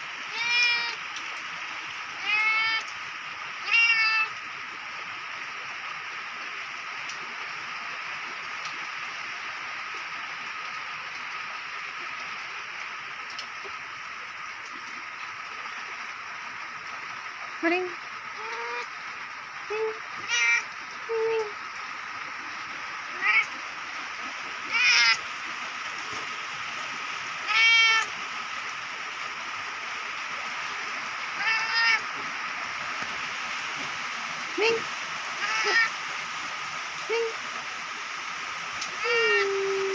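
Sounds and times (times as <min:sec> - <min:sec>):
steady rainfall: 0:00.0 - 0:39.9
cat meowing: 0:00.3 - 0:01.0, 0:02.2 - 0:02.8, 0:03.6 - 0:04.3, 0:20.2 - 0:20.7, 0:23.2 - 0:23.5, 0:24.7 - 0:25.2, 0:27.5 - 0:28.1, 0:31.4 - 0:32.0, 0:35.4 - 0:35.9
light ticks: 0:13.3 - 0:13.6.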